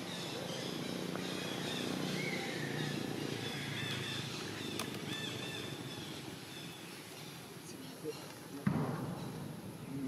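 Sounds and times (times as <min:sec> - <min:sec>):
rising-and-falling calls: 0:00.0 - 0:07.5.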